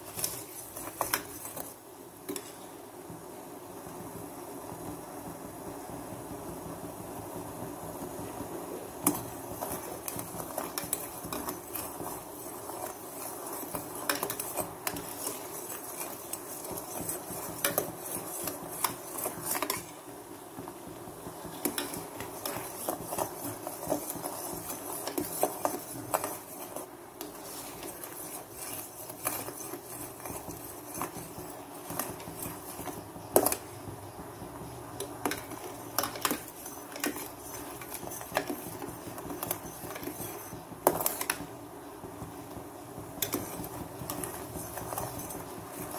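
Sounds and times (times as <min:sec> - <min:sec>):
spoon scraping a pan: 0:00.0 - 0:02.8, 0:09.0 - 0:20.1, 0:21.3 - 0:33.9, 0:34.6 - 0:41.6, 0:43.2 - 0:45.9
steady hiss: 0:00.0 - 0:45.9.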